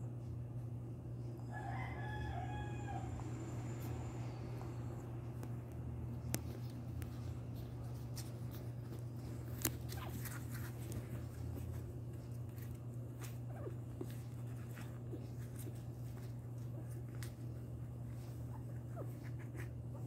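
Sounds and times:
puppies nursing clicks and rustles: 3.8 - 20.0
puppies squeaking: 9.2 - 11.7.

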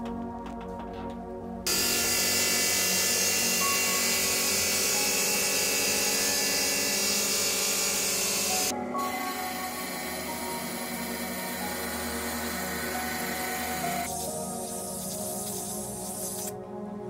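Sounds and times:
rock saw hissing and whining: 1.7 - 16.5.

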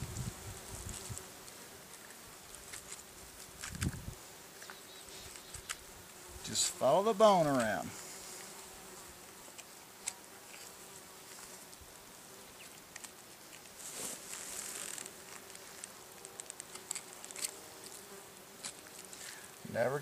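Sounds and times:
bees buzzing: 0.0 - 20.0
hands rustling: 13.0 - 17.5.

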